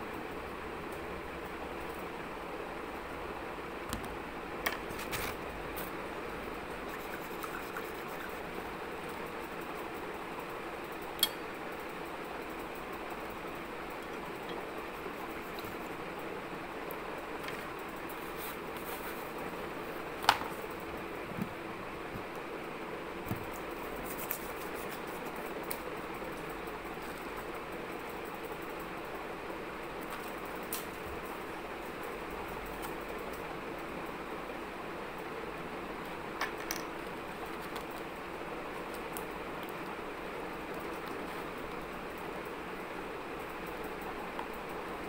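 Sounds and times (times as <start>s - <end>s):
room noise: 0.0s - 45.0s
steady background hiss: 0.0s - 45.0s.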